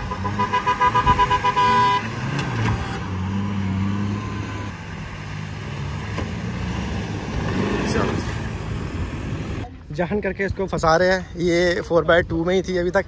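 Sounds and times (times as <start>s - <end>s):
vehicle horn short beeps: 0.0s - 2.1s
suv engine under load: 0.0s - 9.7s.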